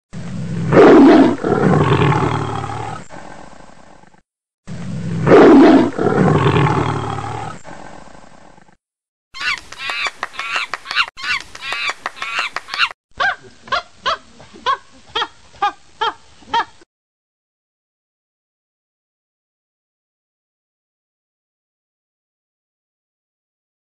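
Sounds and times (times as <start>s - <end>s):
big cat roaring: 0.3s - 8.8s.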